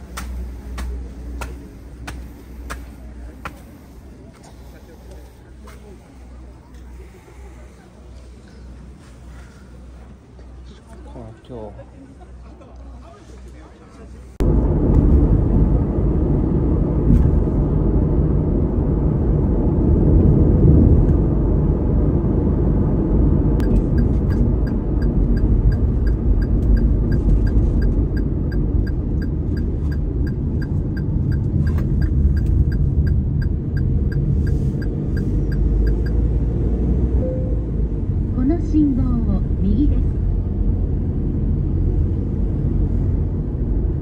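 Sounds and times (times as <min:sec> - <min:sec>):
car road and engine rumble: 0:00.0 - 0:44.0
regular ticking: 0:23.6 - 0:36.2.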